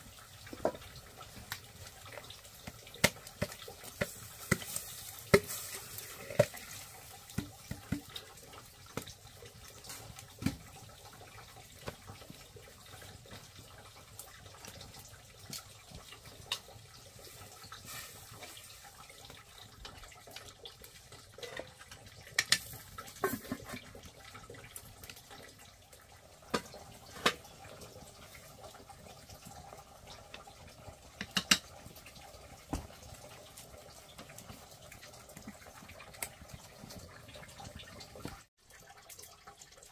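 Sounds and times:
water splashing and trickling: 0:00.0 - 0:39.9
sharp clicks and knocks: 0:31.2 - 0:31.7.

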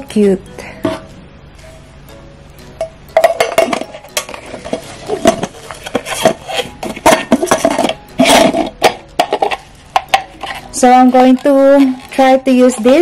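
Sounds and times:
metal pot clinking and knocking: 0:02.8 - 0:13.0.

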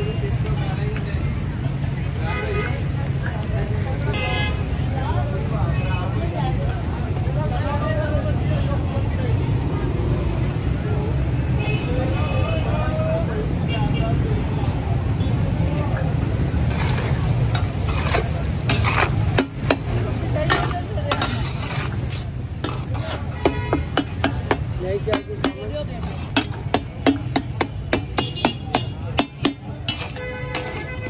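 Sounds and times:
metal spatula scraping griddle: 0:16.5 - 0:31.0.

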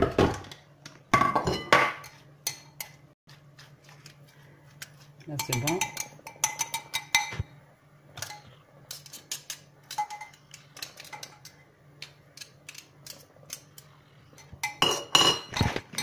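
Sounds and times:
spoon clinking against glass bowl: 0:05.3 - 0:07.5.

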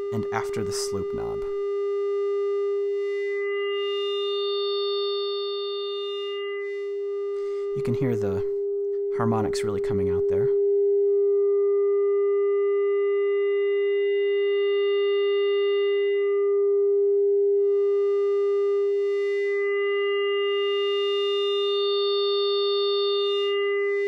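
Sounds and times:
steady synth tone: 0:00.0 - 0:09.9, 0:10.6 - 0:24.0.

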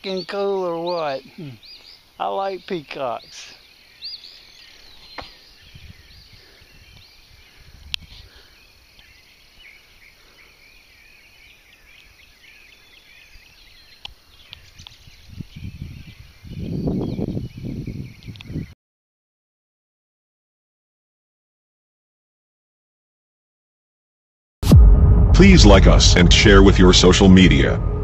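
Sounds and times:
songbirds chirping: 0:00.0 - 0:18.8
low rumble: 0:24.6 - 0:28.0.

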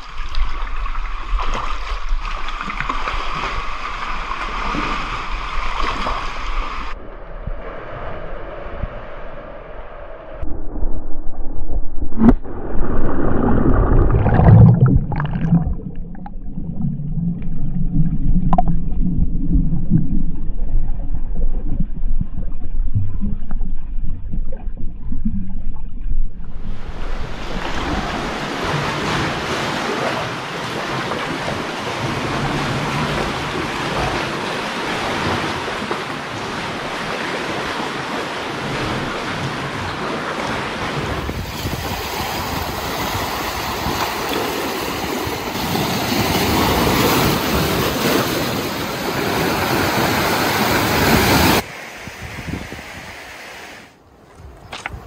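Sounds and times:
muffled underwater rumble: 0:06.7 - 0:28.9
waves splashing against rocks: 0:12.2 - 0:15.9, 0:26.8 - 0:52.7
wind buffeting microphone: 0:40.9 - 0:44.3, 0:49.6 - 0:53.3.

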